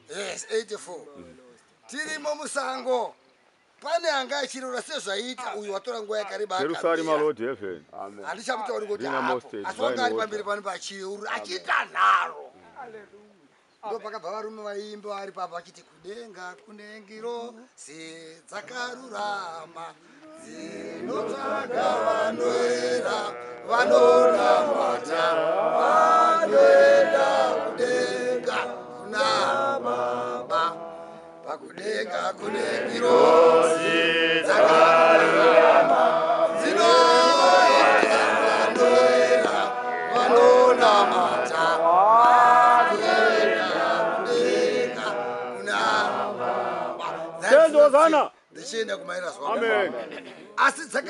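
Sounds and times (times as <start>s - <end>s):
men chanting a worship song: 17.0s - 50.2s.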